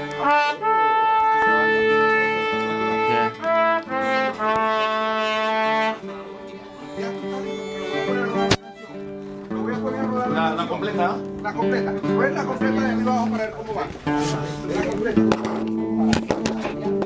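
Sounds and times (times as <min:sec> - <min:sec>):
trumpets blaring: 0:00.0 - 0:06.3
violins and bass guitar: 0:00.0 - 0:17.0.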